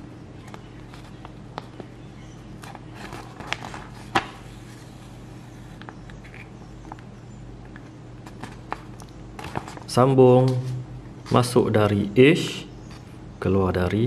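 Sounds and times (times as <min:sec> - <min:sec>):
paper rustling and crinkling: 0:02.6 - 0:04.9, 0:08.2 - 0:09.9.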